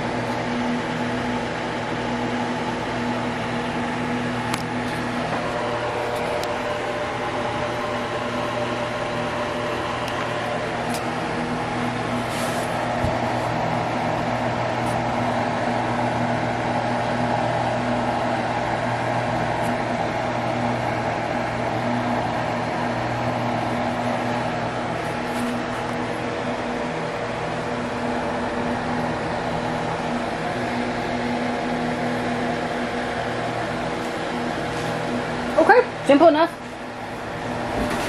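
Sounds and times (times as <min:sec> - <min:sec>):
appliance motor and fan humming: 0:00.0 - 0:38.0.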